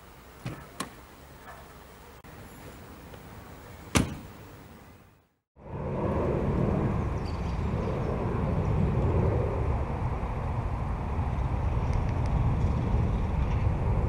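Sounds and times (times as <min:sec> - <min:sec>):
truck door shutting: 0:03.8 - 0:04.5
wind buffeting microphone: 0:05.6 - 0:14.0.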